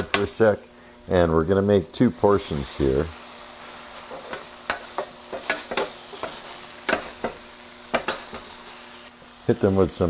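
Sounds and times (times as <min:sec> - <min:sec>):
food sizzling on griddle: 0:00.0 - 0:10.0
metal spatulas scraping griddle: 0:04.0 - 0:08.6.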